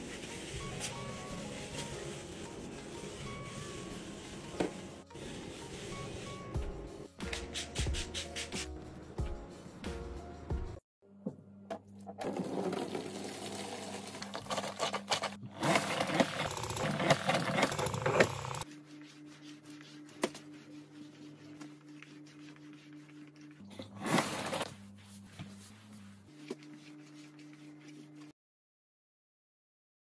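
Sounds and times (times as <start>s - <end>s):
spin mop cleaning: 0.0s - 8.6s, 12.2s - 28.3s
mop scuff: 24.0s - 27.1s.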